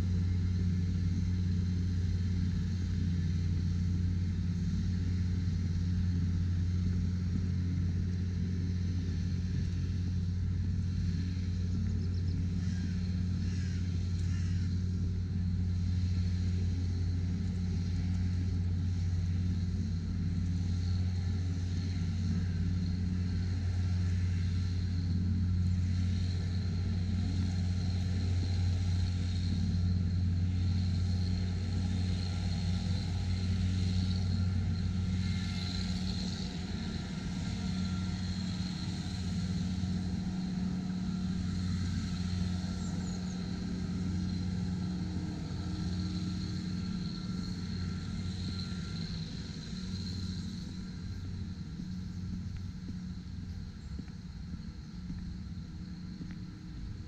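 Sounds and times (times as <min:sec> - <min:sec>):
low rumble: 0:42.3 - 0:57.0.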